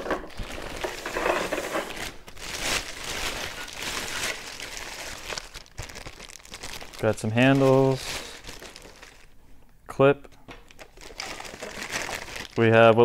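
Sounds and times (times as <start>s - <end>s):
plastic bag crinkling: 0.0s - 9.4s, 10.7s - 13.0s.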